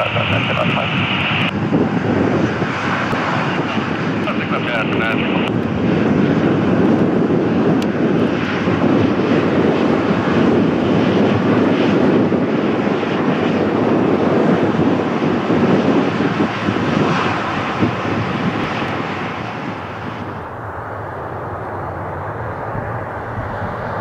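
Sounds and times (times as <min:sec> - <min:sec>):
jet engines taxiing hum: 0:00.0 - 0:24.0.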